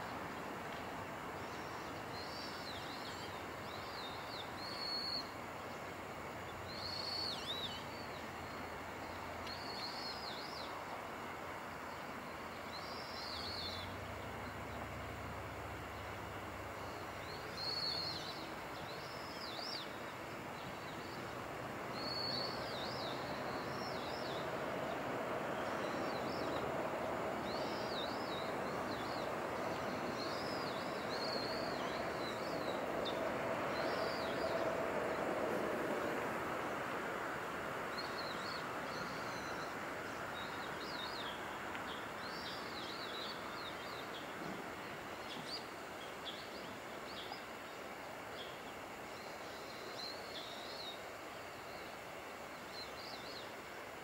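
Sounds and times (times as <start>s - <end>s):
steady background hiss: 0.0s - 54.0s
small birds chirping: 16.8s - 36.9s.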